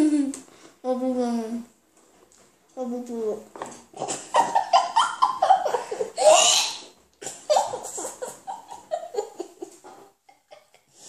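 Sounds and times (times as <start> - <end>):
children laughing: 4.1 - 10.8.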